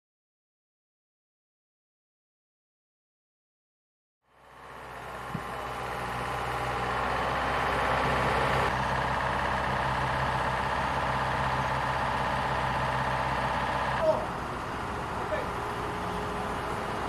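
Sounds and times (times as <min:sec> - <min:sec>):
heavy crane engine running: 0:04.3 - 0:17.0.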